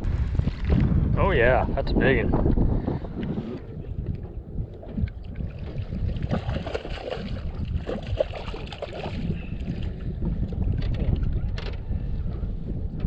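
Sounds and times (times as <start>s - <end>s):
wind buffeting microphone: 0.0s - 13.0s
water slapping boat hull: 3.6s - 13.0s.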